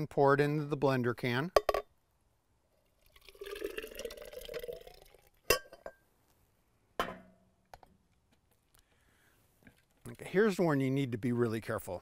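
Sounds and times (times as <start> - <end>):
glass jar knocking on base: 1.6 - 1.9
puree pouring into blender jar: 2.8 - 5.4
glass clink: 5.5 - 6.0.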